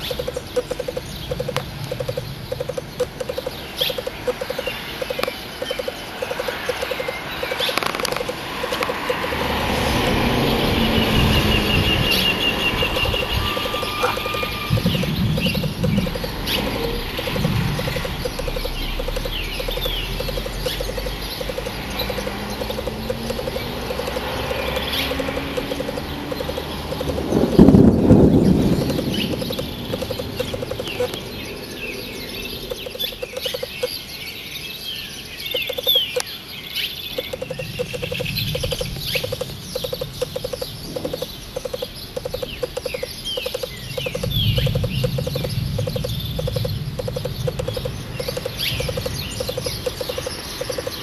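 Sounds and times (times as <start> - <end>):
animal low pulsing call: 0.0 - 31.2, 37.3 - 51.0
wind noise: 0.0 - 33.9, 37.2 - 51.0
bird chirps: 0.0 - 51.0
steady background hum: 11.7 - 31.2.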